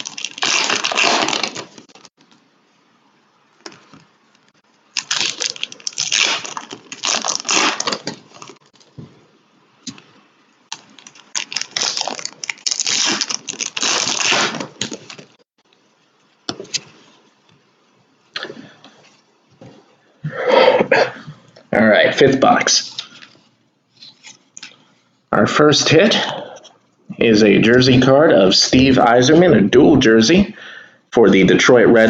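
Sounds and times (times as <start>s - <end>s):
foil wrappers crinkling: 0.0s - 2.4s, 3.6s - 9.0s, 10.7s - 15.4s.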